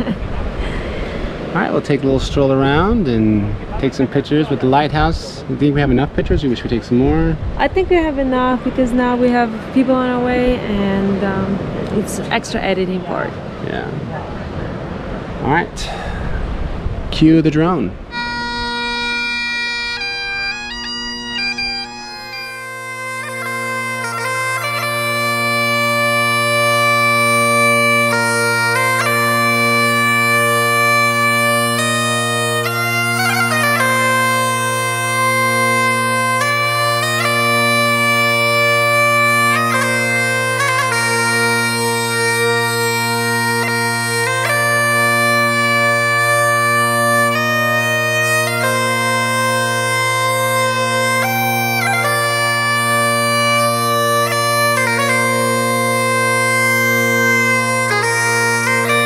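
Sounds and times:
bagpipe music: 0:17.6 - 0:59.0.

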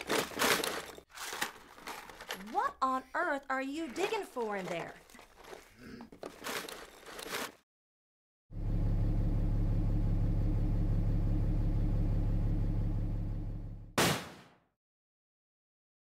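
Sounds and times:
rustling: 0:00.0 - 0:02.6
vehicle engine running: 0:08.5 - 0:14.0
tyre bursting with loud pop: 0:14.0 - 0:14.5.

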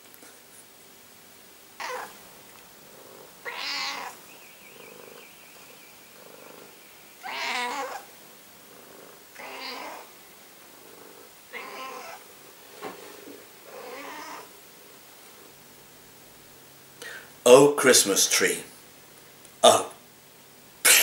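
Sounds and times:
cat meowing: 0:01.8 - 0:02.2, 0:03.4 - 0:04.2, 0:06.2 - 0:08.1, 0:09.4 - 0:10.1, 0:11.5 - 0:12.2, 0:13.7 - 0:14.5.

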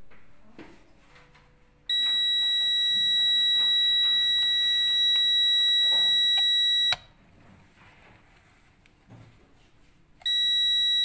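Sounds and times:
multimeter continuity beep: 0:01.9 - 0:07.1, 0:10.2 - 0:11.0.

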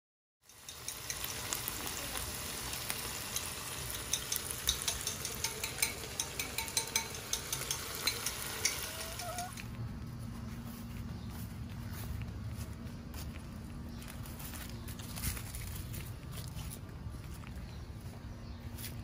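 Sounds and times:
food sizzling in oil: 0:00.4 - 0:09.6.

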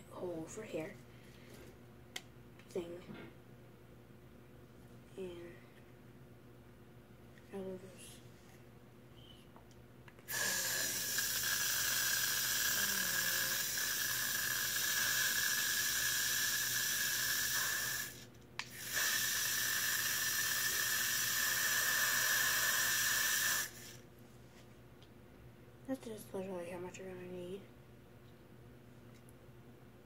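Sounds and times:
hairspray can spraying hiss: 0:10.3 - 0:24.0.

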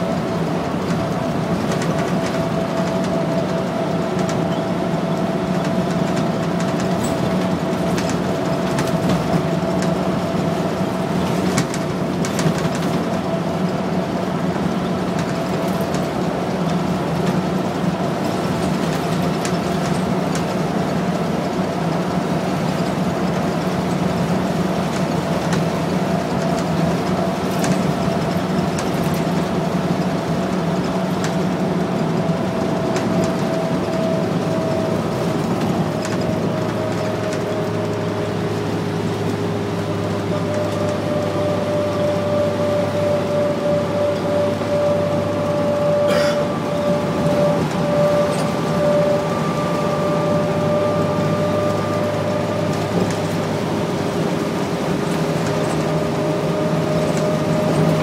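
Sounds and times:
bus engine drone: 0:00.0 - 0:58.0
road noise: 0:00.0 - 0:58.0
steady high tone: 0:41.2 - 0:52.6.

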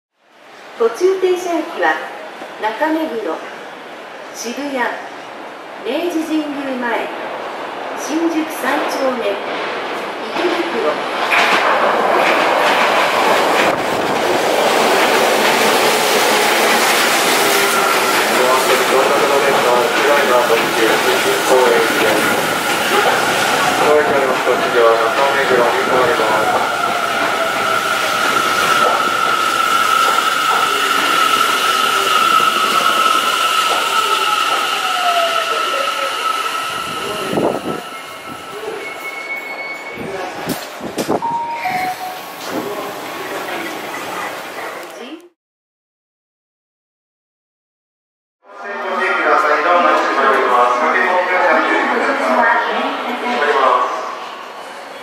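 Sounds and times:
electric train wheels on rail: 0:08.8 - 0:45.0
train wheel and brake squeal: 0:24.9 - 0:40.6.

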